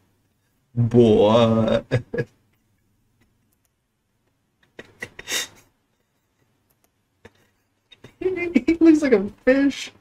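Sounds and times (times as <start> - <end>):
computer mouse clicks: 3.2 - 3.8, 6.6 - 7.0
man laughing breathily: 4.7 - 6.6, 7.2 - 8.2.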